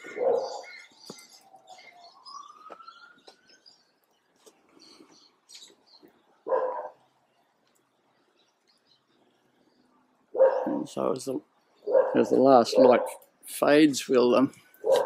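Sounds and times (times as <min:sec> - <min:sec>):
birds chirping: 0:00.0 - 0:15.0
dog barking: 0:00.1 - 0:00.6, 0:06.4 - 0:07.0, 0:10.3 - 0:10.9, 0:11.8 - 0:13.2.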